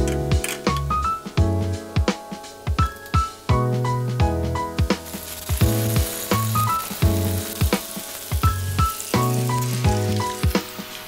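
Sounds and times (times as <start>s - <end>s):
background music with steady beat: 0.0s - 11.0s
potato slices sizzling in oil: 2.5s - 11.0s.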